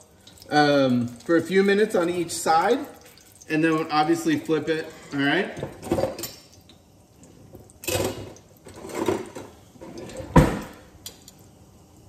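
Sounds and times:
drawer opening: 7.9 - 10.8
drawer shutting with thump: 10.2 - 10.7.

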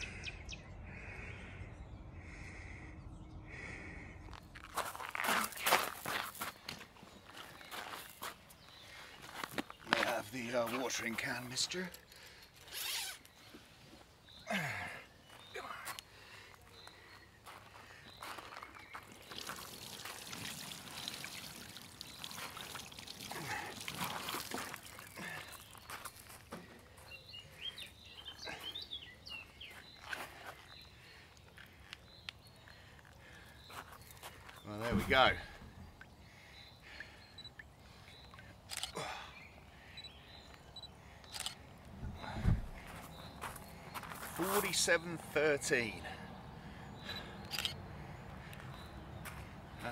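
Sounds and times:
water pouring from watering can: 19.0 - 25.4
water splashing off fish: 19.2 - 25.2.

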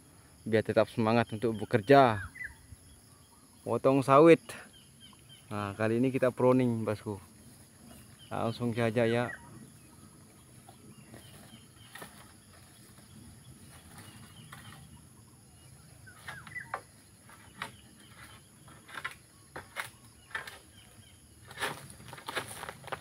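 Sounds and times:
faint bird chirps: 0.1 - 21.4
sickle clicking and scraping fronds: 10.2 - 15.0, 16.0 - 23.0.

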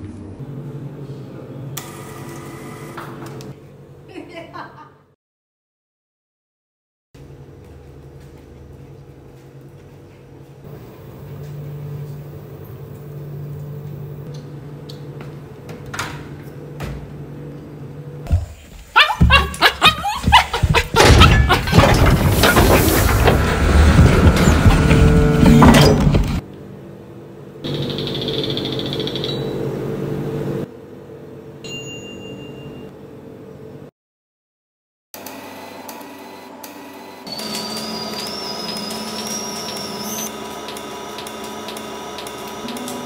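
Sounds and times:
vending machine electrical hum: 0.0 - 4.9, 7.2 - 33.9, 35.2 - 43.0
bright electronic ding: 31.6 - 32.9.

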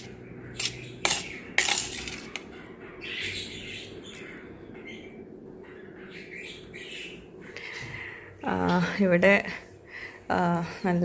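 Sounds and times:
spoon clinking on metal plate: 0.6 - 2.4.

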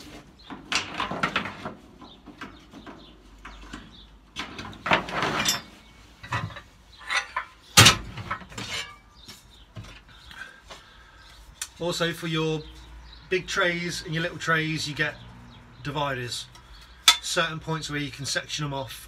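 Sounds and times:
metal parts clattering on shelving: 0.2 - 9.1.

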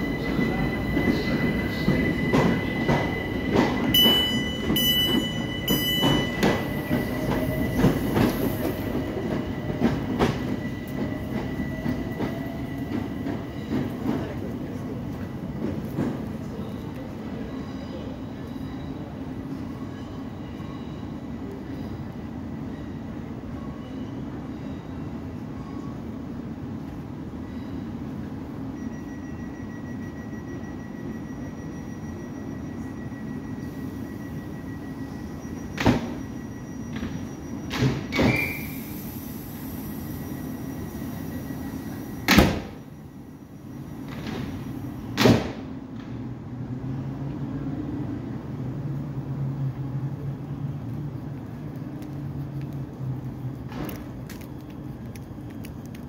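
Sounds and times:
electric train pulling out: 0.0 - 16.7, 28.9 - 45.2
train equipment humming: 0.0 - 22.3, 46.9 - 56.0.

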